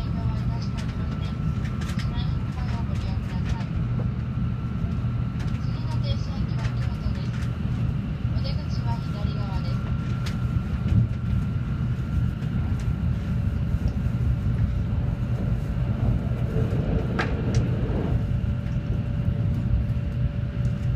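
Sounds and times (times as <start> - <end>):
train wheels rumbling on rail: 0.0 - 20.9
rushing air: 13.1 - 19.1.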